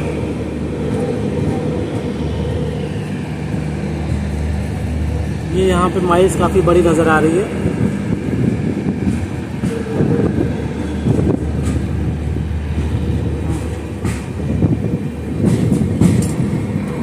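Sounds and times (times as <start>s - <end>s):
train rumbling on track: 0.0s - 17.0s
train wheel knocks: 8.9s - 17.0s.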